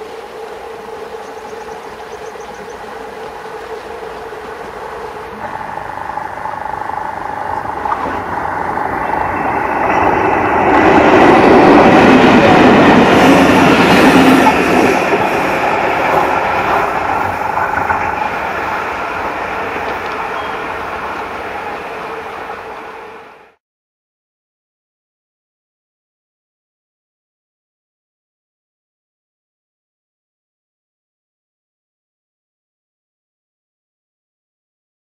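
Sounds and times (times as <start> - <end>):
diesel locomotive engine: 0.0 - 23.6
wheels clattering on rails: 5.1 - 22.7.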